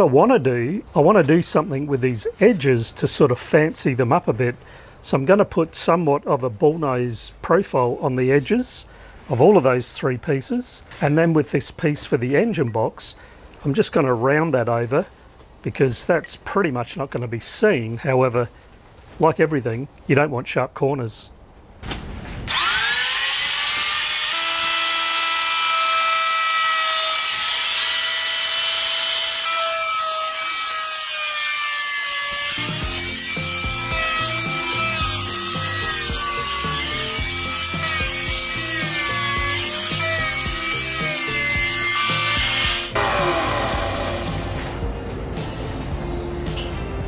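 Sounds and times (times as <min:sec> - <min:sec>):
electric router whining: 0:22.5 - 0:45.0
background music with a beat: 0:32.6 - 0:47.0.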